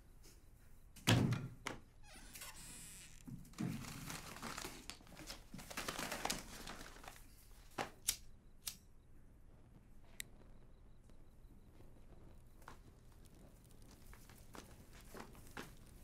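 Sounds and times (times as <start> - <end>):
banknotes rustling: 3.6 - 8.0, 12.5 - 16.0
sharp clicks: 8.0 - 8.9.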